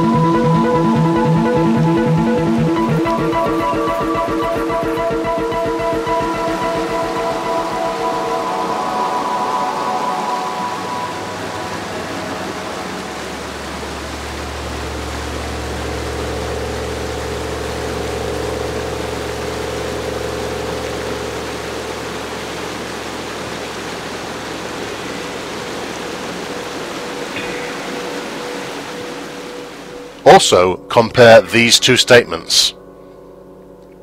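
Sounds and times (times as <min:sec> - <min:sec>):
low synthesizer drone: 0:00.0 - 0:34.0
stream rushing over a ford: 0:05.5 - 0:30.7.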